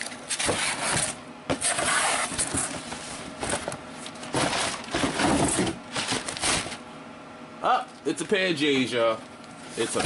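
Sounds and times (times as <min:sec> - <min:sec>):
cardboard box scraping and rustling: 0:00.3 - 0:03.2.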